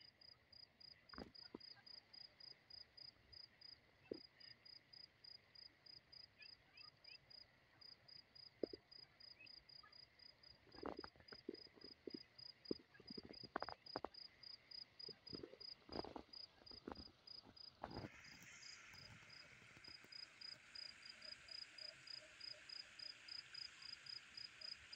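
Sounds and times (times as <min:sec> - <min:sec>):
faint steady hiss: 0:00.0 - 0:24.9
insect chirping: 0:09.2 - 0:24.9.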